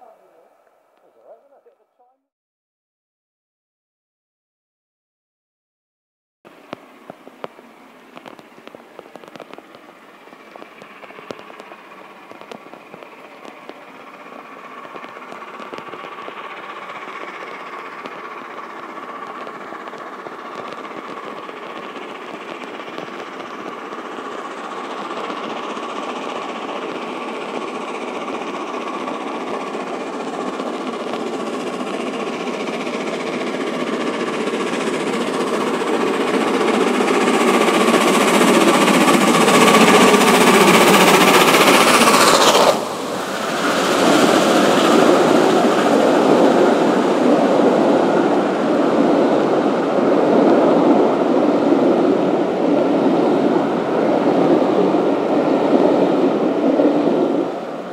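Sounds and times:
steam locomotive exhaust beat: 0:06.5 - 0:57.9.

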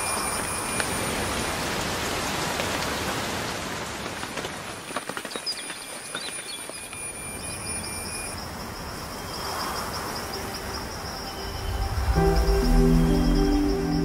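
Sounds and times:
high insect trill: 0:00.0 - 0:01.8, 0:05.3 - 0:14.0
soft ambient music: 0:09.3 - 0:14.0.

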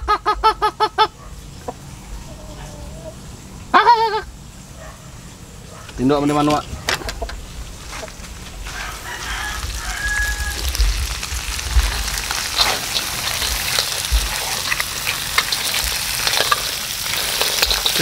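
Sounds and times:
seafood sizzling in a wok: 0:07.4 - 0:18.0
spatula scraping a pan: 0:11.8 - 0:18.0.

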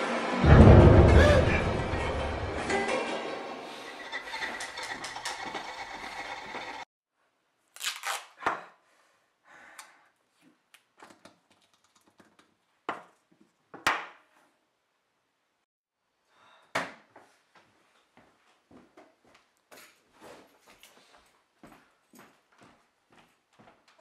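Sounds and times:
music: 0:00.0 - 0:04.0
duct tape being pulled and torn: 0:07.8 - 0:08.4.

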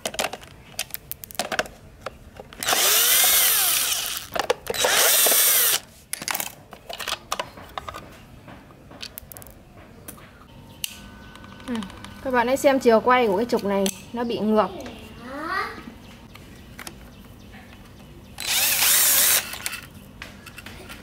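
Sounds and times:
cordless screwdriver whining: 0:02.6 - 0:05.8, 0:18.4 - 0:19.7.

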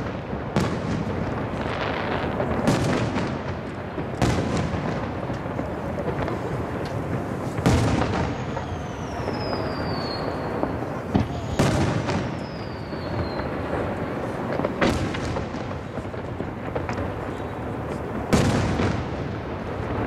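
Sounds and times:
high falling whistle: 0:08.3 - 0:10.6.

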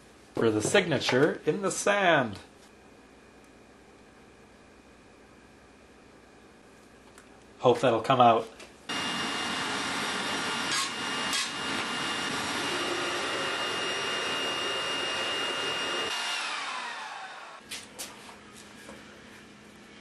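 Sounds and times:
electric air blower whining: 0:08.9 - 0:17.7.

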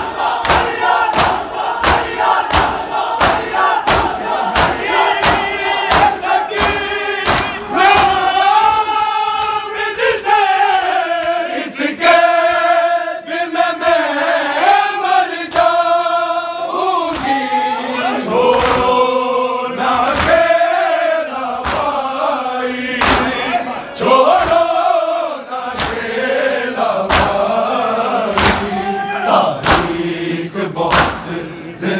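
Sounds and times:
crowd of men chanting: 0:00.0 - 0:31.9
hands slapping chests: 0:00.1 - 0:09.2, 0:17.1 - 0:17.5, 0:18.5 - 0:19.0, 0:19.8 - 0:20.5, 0:21.6 - 0:22.1, 0:23.0 - 0:23.4, 0:25.7 - 0:26.2, 0:27.0 - 0:27.6, 0:28.3 - 0:28.9, 0:29.6 - 0:30.0, 0:30.9 - 0:31.4.

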